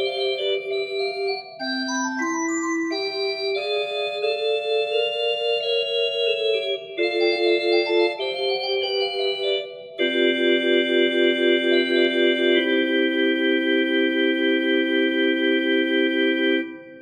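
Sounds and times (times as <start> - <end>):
pipe organ chords pulsing: 0.0 - 17.0.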